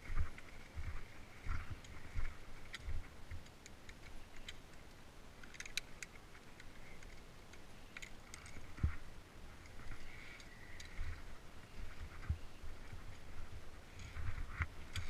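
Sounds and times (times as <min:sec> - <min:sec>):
carabiners clicking on steel cable: 0:02.6 - 0:08.9.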